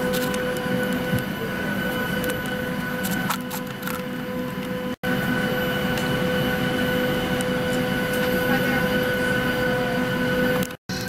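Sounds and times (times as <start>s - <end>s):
constant whine: 0.0s - 11.0s.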